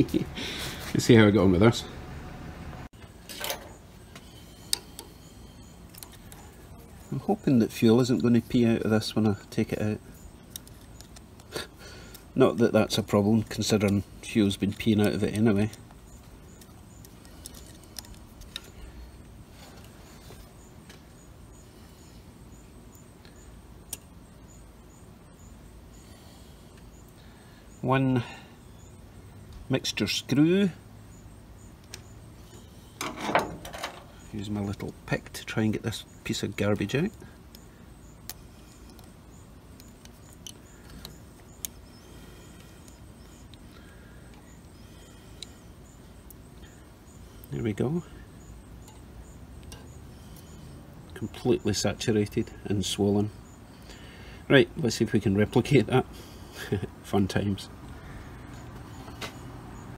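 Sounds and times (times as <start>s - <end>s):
low background noise: 0.0s - 59.9s
faint high chirp: 3.0s - 8.3s
small handling sounds: 10.2s - 12.4s, 13.0s - 21.1s.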